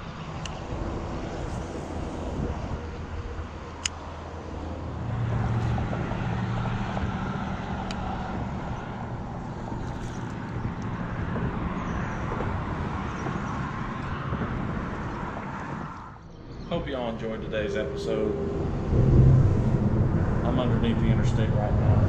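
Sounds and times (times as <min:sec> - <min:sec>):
highway traffic noise: 0:00.0 - 0:22.0
low hum: 0:14.0 - 0:22.0.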